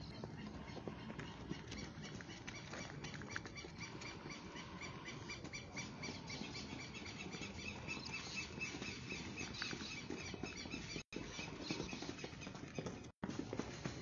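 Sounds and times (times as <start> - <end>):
boots marching on pavement: 0.0 - 14.0.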